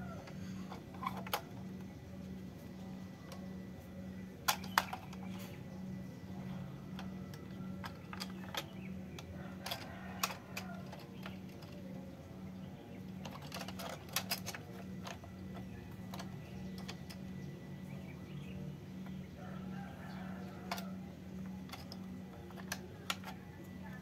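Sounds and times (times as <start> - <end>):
steady low hum: 0.0 - 24.0
plastic toy clicks and taps: 7.0 - 11.8, 13.2 - 17.2, 21.7 - 23.4.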